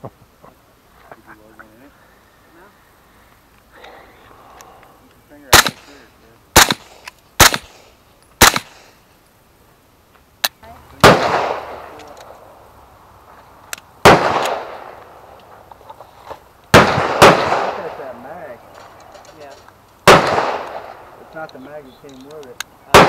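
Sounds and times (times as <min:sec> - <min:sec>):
gunshots with echoing tails: 0:05.5 - 0:06.0, 0:06.6 - 0:08.8, 0:11.0 - 0:12.0, 0:14.0 - 0:15.0, 0:16.7 - 0:18.2, 0:20.0 - 0:21.2.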